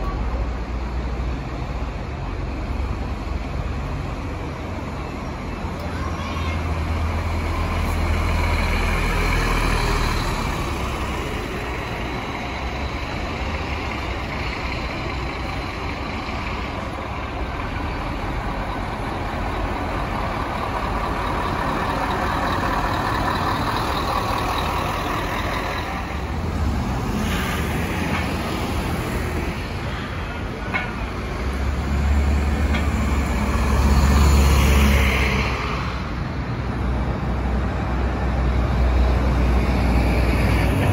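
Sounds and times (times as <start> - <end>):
bus engine running: 0.0 - 40.9.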